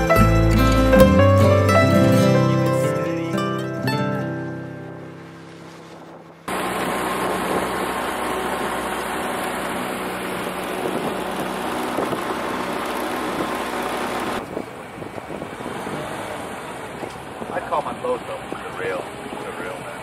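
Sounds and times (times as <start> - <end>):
boat motor running: 4.9 - 20.0
water rushing past hull: 5.2 - 19.4
wind noise: 5.5 - 9.0, 10.1 - 20.0.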